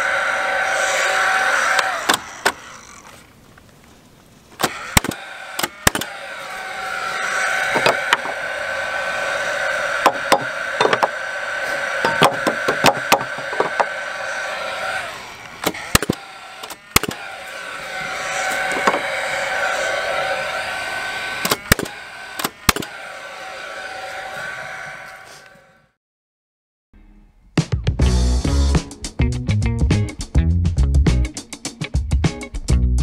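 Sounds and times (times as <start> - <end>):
nail gun fan whirring: 0.0 - 3.4, 4.6 - 25.5
nail gun shots into wood: 4.6 - 6.1, 15.6 - 17.2, 21.4 - 22.9.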